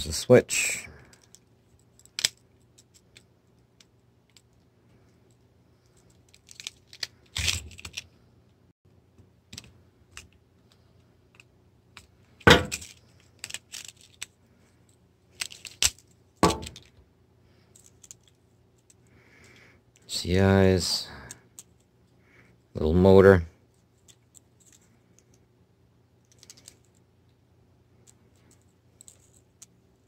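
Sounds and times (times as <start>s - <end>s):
plastic toy parts clicking: 1.1s - 4.7s, 5.8s - 8.1s, 12.7s - 14.4s, 15.3s - 17.0s, 17.7s - 19.0s, 26.2s - 27.0s, 28.0s - 29.8s.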